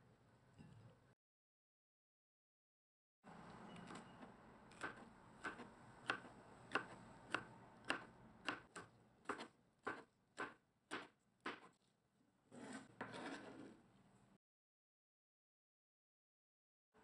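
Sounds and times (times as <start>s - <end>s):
knife slicing pepper on cutting board: 4.7s - 11.8s.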